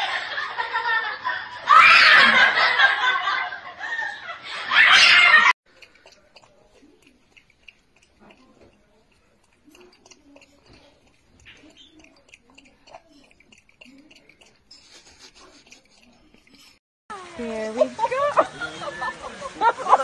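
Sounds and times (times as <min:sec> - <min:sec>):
children laughing and shrieking: 0:00.0 - 0:05.6, 0:17.1 - 0:20.0
raccoon lapping water: 0:04.8 - 0:16.8.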